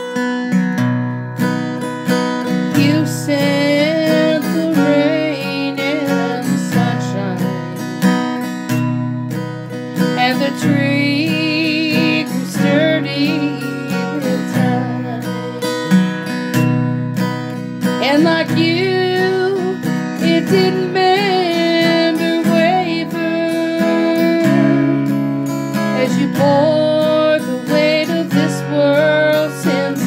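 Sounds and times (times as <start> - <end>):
acoustic guitar strumming: 0.0 - 30.0
woman singing: 2.4 - 8.3, 10.0 - 16.5, 17.8 - 30.0.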